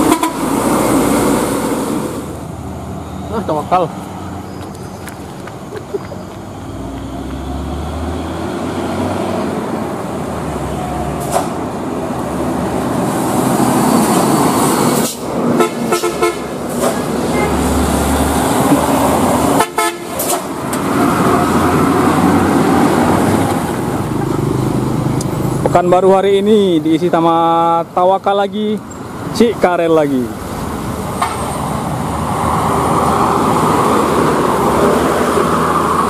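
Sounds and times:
short horn toots: 0.0s - 0.5s
diesel trucks passing: 0.0s - 36.0s.

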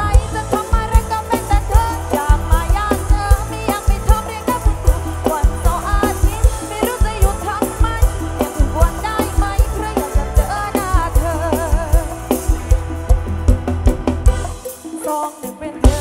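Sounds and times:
woman singing into a microphone: 0.0s - 12.7s, 14.9s - 16.0s
bass: 0.0s - 16.0s
drum kit beat: 0.0s - 16.0s
electric guitar: 0.0s - 16.0s
keyboard: 0.0s - 16.0s.

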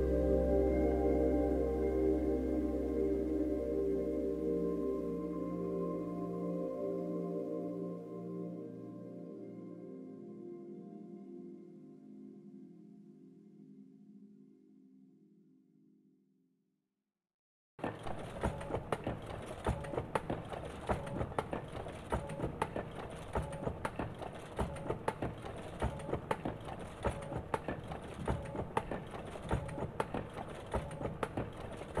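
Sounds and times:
sharp mechanical knocks: 17.8s - 32.0s.

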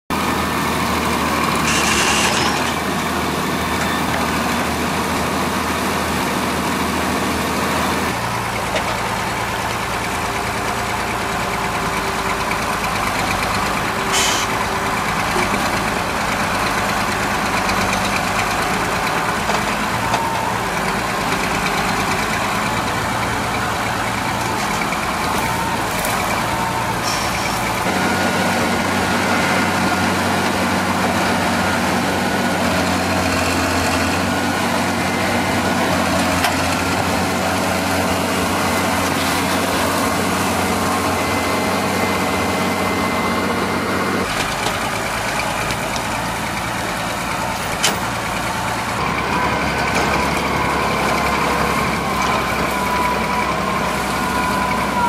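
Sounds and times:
tractor engine under load: 0.1s - 55.0s.

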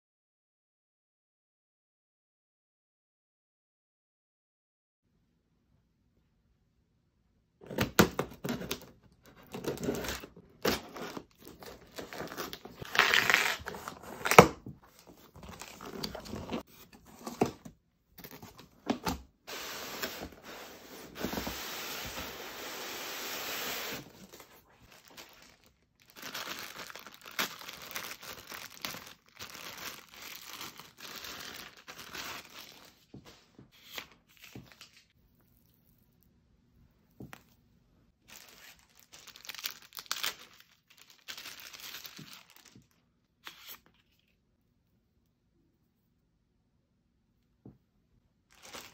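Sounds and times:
cardboard and plastic rustling: 7.7s - 35.0s, 48.6s - 48.9s
cardboard box sliding hiss: 19.5s - 24.2s.

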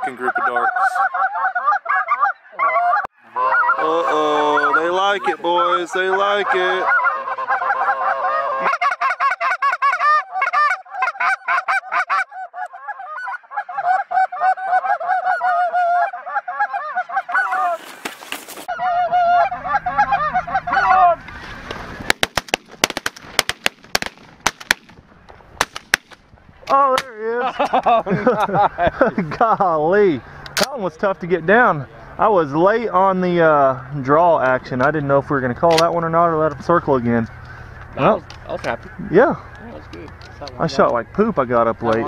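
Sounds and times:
geese honking: 0.0s - 22.3s, 35.3s - 42.0s
shotgun shots: 22.1s - 25.0s.

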